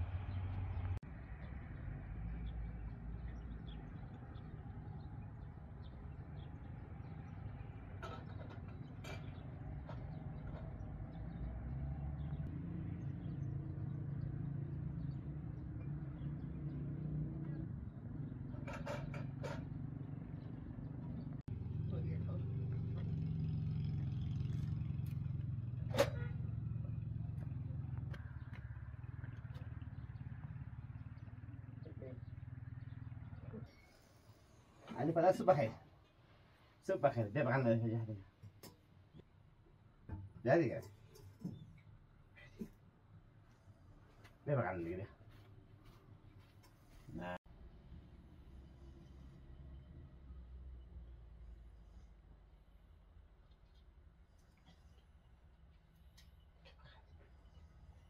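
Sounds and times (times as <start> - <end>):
engine idling: 0.0 - 36.7.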